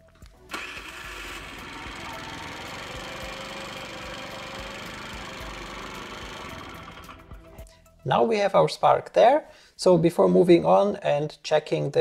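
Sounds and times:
scooter engine cranking: 0.5s - 7.4s.

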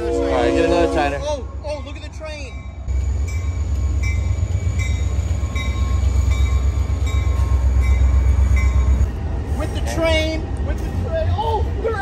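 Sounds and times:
crossing bell ringing: 0.0s - 9.2s
diesel locomotive engine rumble: 0.0s - 12.0s
train wheels rolling: 0.7s - 12.0s.

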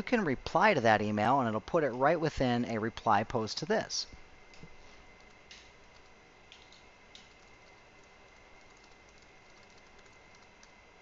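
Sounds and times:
keyboard typing: 5.2s - 10.8s.

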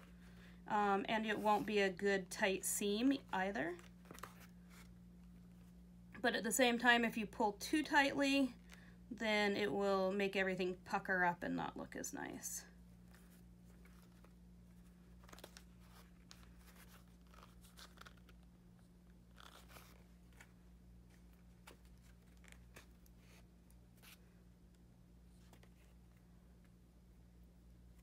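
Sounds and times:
low steady hum: 0.0s - 28.0s
thread pulled through leather: 15.2s - 24.2s.

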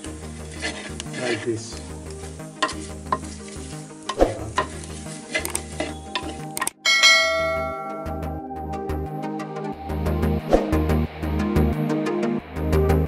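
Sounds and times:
wooden spoon scraping clay pot: 0.0s - 6.6s
onions sizzling: 0.0s - 8.0s
bright chime sound effect: 6.8s - 8.4s.

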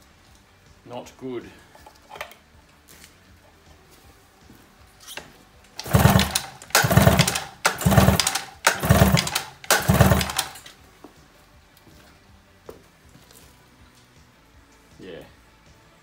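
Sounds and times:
pull-starter cranking outboard engine: 5.8s - 10.7s.

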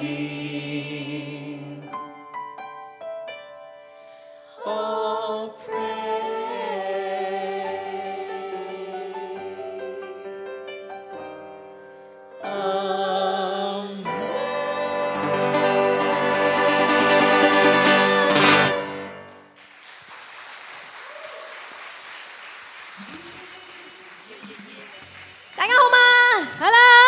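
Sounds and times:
vocal group singing: 0.0s - 2.1s, 4.5s - 10.7s, 12.4s - 19.3s
piano and band accompaniment: 1.9s - 4.5s, 14.0s - 19.5s.

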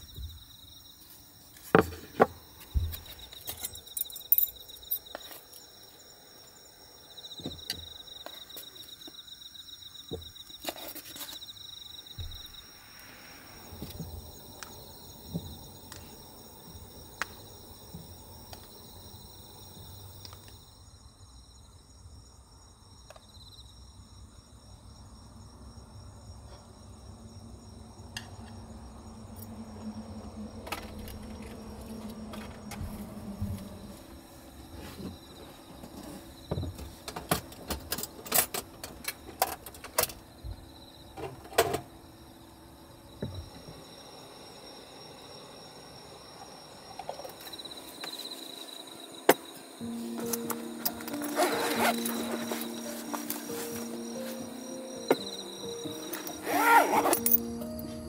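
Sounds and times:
crickets trilling: 0.0s - 58.0s
objects knocking on wooden table: 1.7s - 3.1s.

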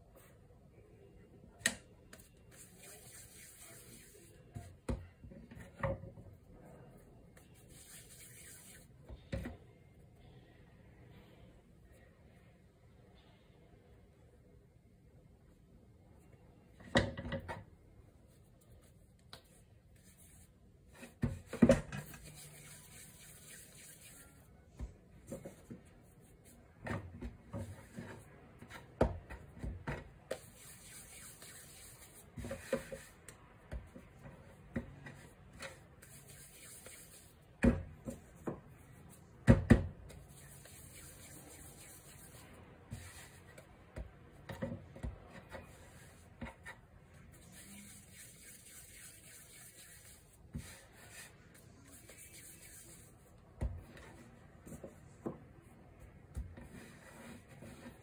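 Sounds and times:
hands rubbing dough: 2.1s - 4.7s, 6.9s - 9.0s, 18.3s - 21.2s, 22.0s - 26.9s, 30.2s - 39.4s, 40.0s - 44.1s, 45.0s - 58.0s.

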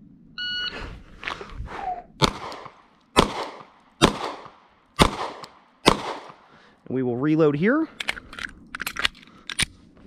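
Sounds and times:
pistol shots: 2.2s - 6.5s.

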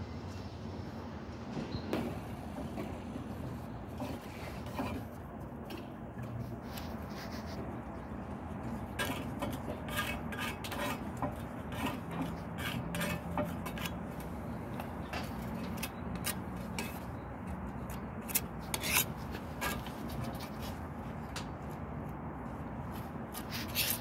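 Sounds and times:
putty knife scraping ceramic tiles: 8.7s - 14.0s, 17.9s - 20.6s.

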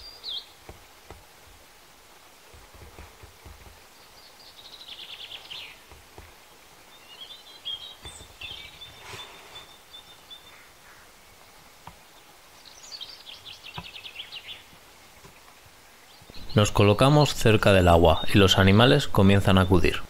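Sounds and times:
high bird chirping: 4.0s - 5.8s, 6.9s - 11.0s.

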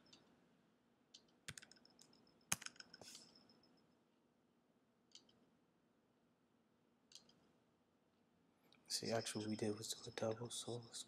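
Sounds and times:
computer keys clicking: 1.2s - 3.4s, 7.1s - 7.5s.

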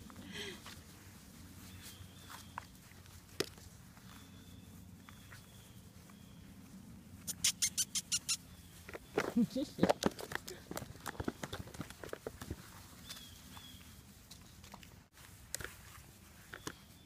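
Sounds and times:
puppy whining: 7.3s - 8.5s.

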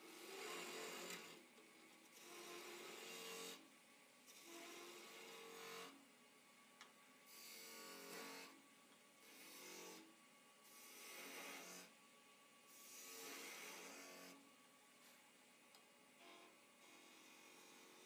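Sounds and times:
lathe tool scraping wood: 0.0s - 3.6s, 4.3s - 6.0s, 7.3s - 8.6s, 10.7s - 11.9s, 12.7s - 14.4s.

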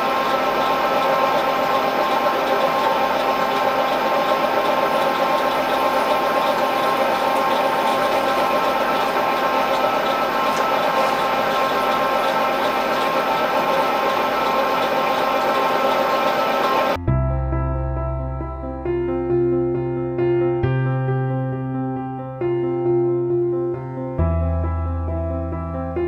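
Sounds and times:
milling machine running: 0.0s - 17.0s.

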